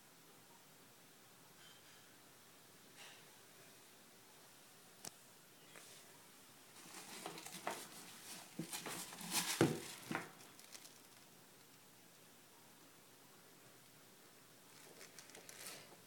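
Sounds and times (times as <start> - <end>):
soft handling rustling: 5.7 - 11.8, 14.7 - 16.0.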